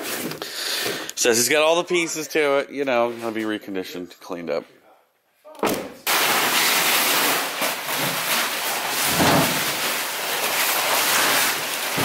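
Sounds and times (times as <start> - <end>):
cardboard rustling and scraping: 6.1 - 12.0.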